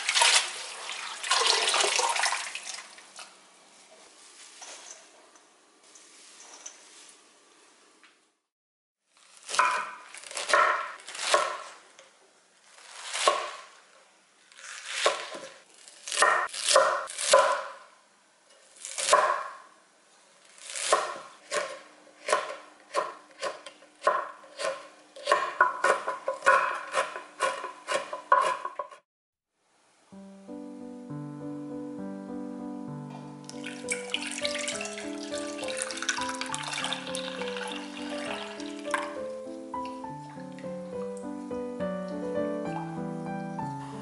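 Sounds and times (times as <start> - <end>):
knife chopping on wooden board: 9.5 - 11.7, 13.1 - 13.6, 16.1 - 17.8, 19.0 - 19.6, 20.8 - 29.0.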